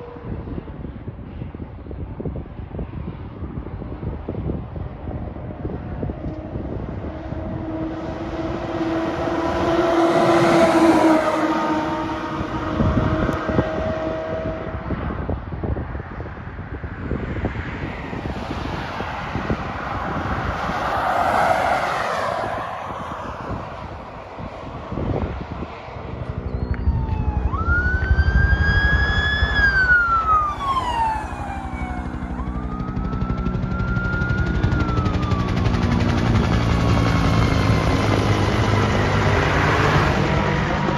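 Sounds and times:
fire truck driving past: 5.6 - 15.3, 18.0 - 40.9
emergency vehicle siren wailing: 6.2 - 14.7, 19.4 - 24.1, 26.0 - 40.9.

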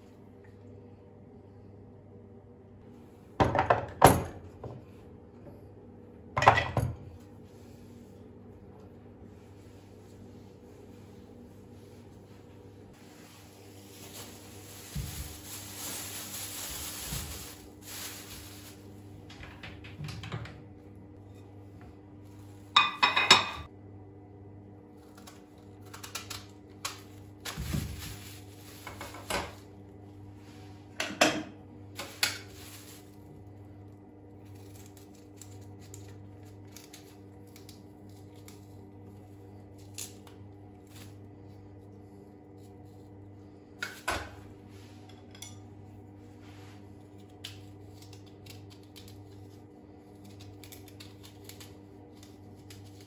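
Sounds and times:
plates clattering on countertop: 3.4 - 4.8, 6.4 - 7.1, 22.8 - 23.7, 31.0 - 31.6
plastic bag crinkling: 13.0 - 18.9, 27.4 - 29.3, 32.0 - 33.4.

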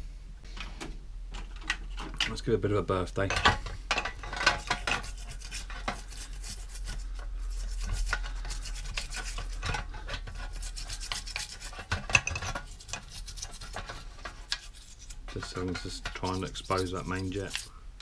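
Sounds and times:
metal tool scraping in carburetor: 4.1 - 17.8.

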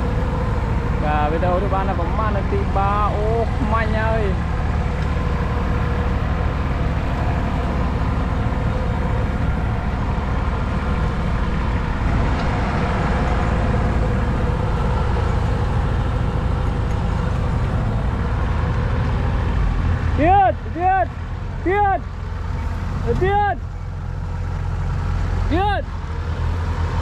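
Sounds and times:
diesel tractor engines droning: 0.0 - 27.0.

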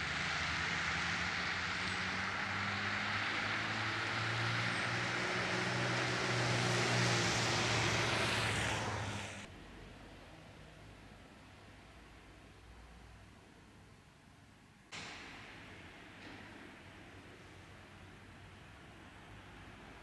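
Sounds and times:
vehicle engine humming: 0.0 - 9.5.

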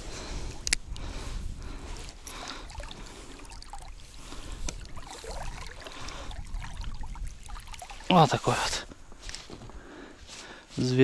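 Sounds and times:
light clicks: 0.4 - 1.1
water splashing and trickling: 0.4 - 9.1.

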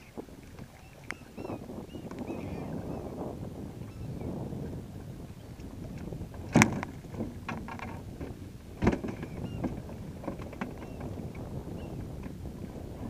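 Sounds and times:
water slapping boat hull: 0.0 - 13.0
wind: 0.0 - 13.0.

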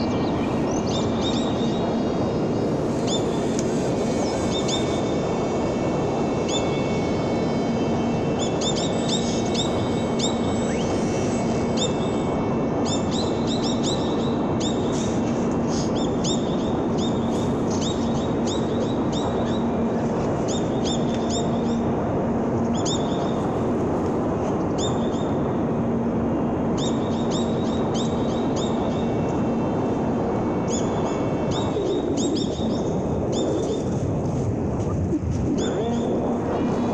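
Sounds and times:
small birds chirping: 0.0 - 5.1
low hum: 0.0 - 36.9
steady rushing noise: 0.0 - 36.9.

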